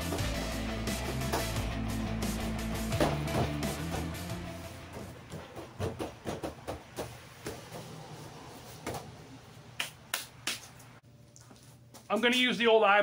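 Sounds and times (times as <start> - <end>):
background music: 0.0 - 5.4.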